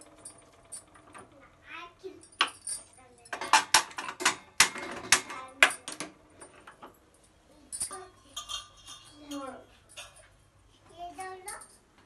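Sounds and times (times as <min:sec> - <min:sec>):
metal cookware clinking: 0:07.8 - 0:10.3.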